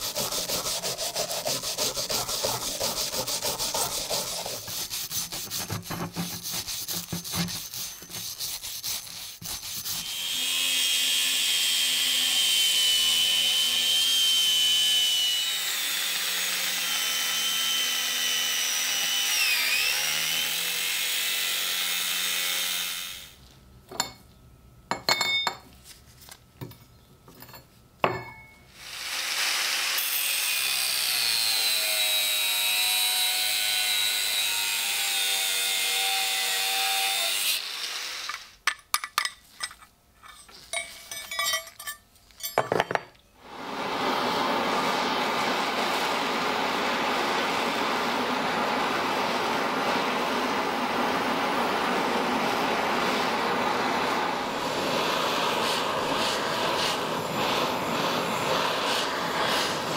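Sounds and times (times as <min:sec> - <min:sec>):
angle grinder cutting metal: 0:00.0 - 0:23.4, 0:28.8 - 0:38.6, 0:53.1 - 0:59.9
metal clinks and taps: 0:38.7 - 0:43.2.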